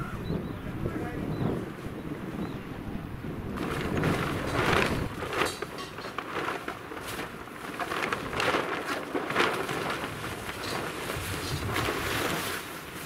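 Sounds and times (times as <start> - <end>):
plastic tarp crackling: 3.5 - 13.0.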